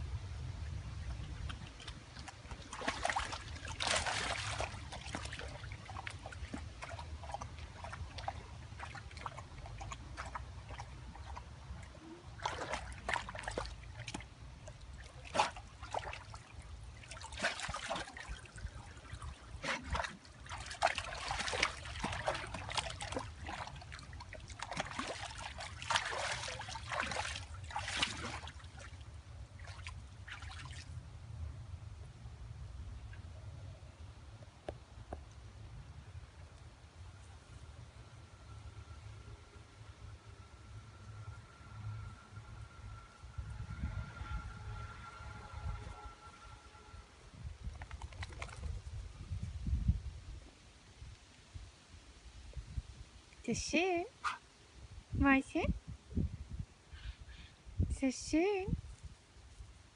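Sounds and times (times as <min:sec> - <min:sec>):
dog splashing in water: 0:01.4 - 0:11.5, 0:12.3 - 0:29.0, 0:29.6 - 0:31.0, 0:47.8 - 0:48.8.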